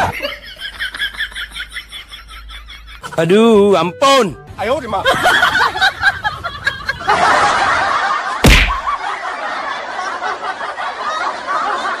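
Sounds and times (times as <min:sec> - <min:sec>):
loud bang: 0:08.4 - 0:08.9.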